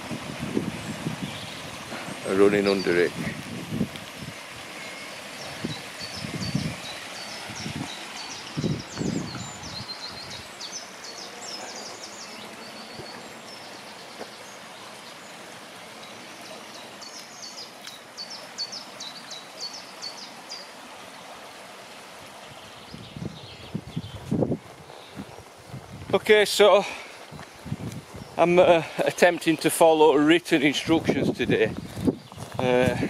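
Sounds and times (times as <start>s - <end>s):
stream rushing: 0.0s - 33.0s
songbird singing high notes: 4.8s - 14.9s.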